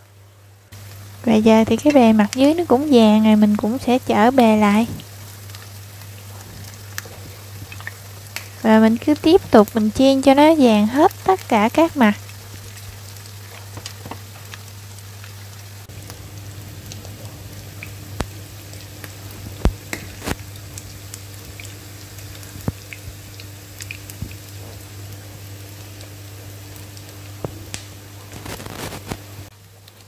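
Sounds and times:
patties sizzling in hot oil: 0:00.0 - 0:30.0
steady low hum: 0:14.8 - 0:28.2.

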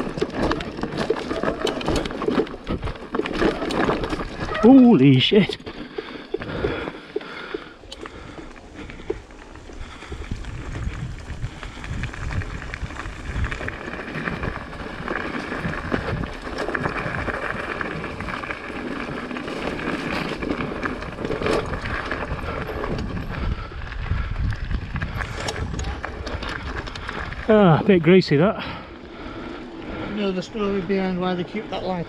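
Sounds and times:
bike rattling and knocking: 0:00.0 - 0:32.0
tyres rumbling over mud and rock: 0:00.0 - 0:32.0
wind on microphone: 0:08.1 - 0:19.2, 0:20.6 - 0:27.5.

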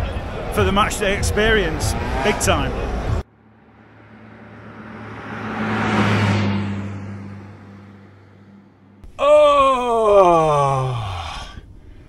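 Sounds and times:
vehicle passing by: 0:00.1 - 0:09.0.

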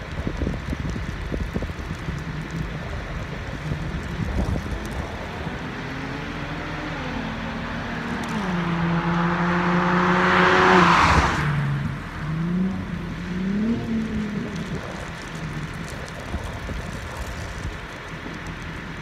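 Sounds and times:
car accelerating past: 0:04.9 - 0:14.9.

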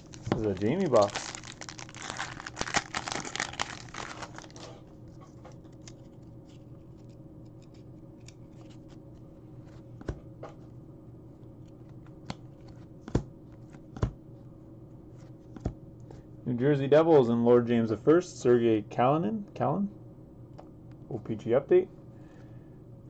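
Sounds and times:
foil wrapper crinkling: 0:00.0 - 0:04.8.

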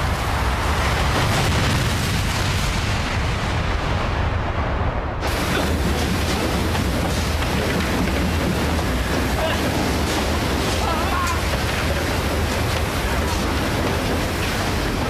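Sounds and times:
explosion blast: 0:00.0 - 0:10.9
explosion rumbling roar: 0:00.0 - 0:15.0.

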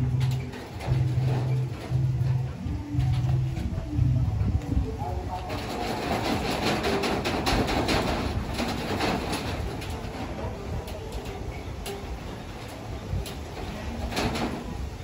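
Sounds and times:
low rumble: 0:00.0 - 0:10.8.

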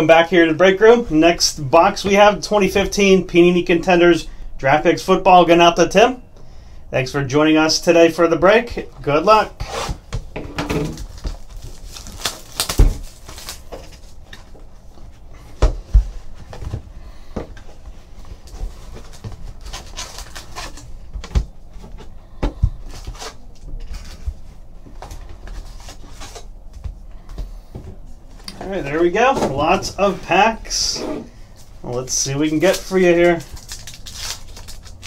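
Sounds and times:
plastic wrap crinkling: 0:10.8 - 0:14.3, 0:18.4 - 0:21.1, 0:31.8 - 0:35.0
foil packs handled: 0:10.8 - 0:14.6, 0:18.2 - 0:21.2, 0:31.4 - 0:35.0.

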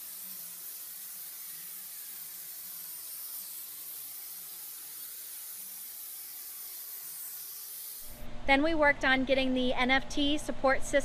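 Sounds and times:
spray foam gun hissing: 0:00.0 - 0:08.2.

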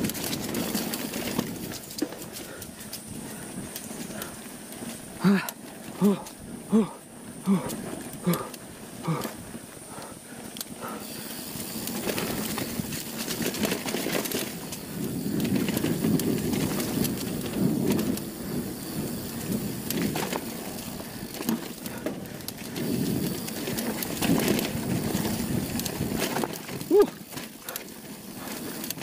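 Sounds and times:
bike clicks and rattles: 0:00.0 - 0:29.0
bike tyres rolling over dirt: 0:00.0 - 0:29.0
wind rushing on microphone: 0:14.5 - 0:27.2.

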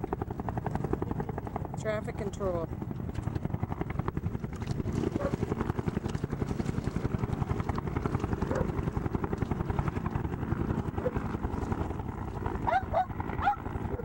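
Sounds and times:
helicopter rotor chopping: 0:00.0 - 0:14.0.

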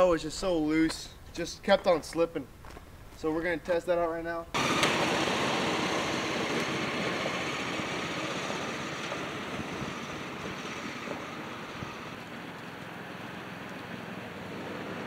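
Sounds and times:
riding lawn mower engine: 0:04.6 - 0:15.0
tyres on gravel: 0:04.6 - 0:15.0.

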